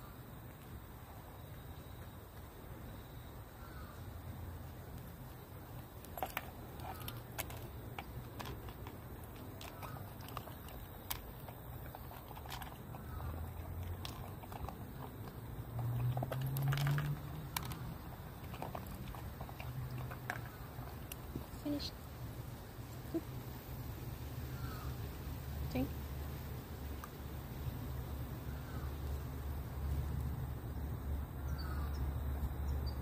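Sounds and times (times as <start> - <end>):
faint bird calls: 3.5 - 4.2, 24.5 - 25.0, 28.4 - 29.1, 31.4 - 32.1.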